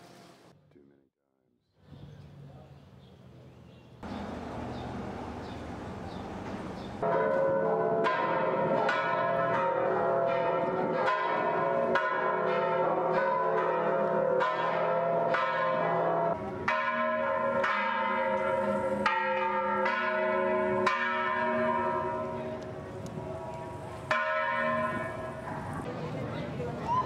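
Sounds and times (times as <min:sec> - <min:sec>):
church bells ringing: 0:07.0 - 0:25.9.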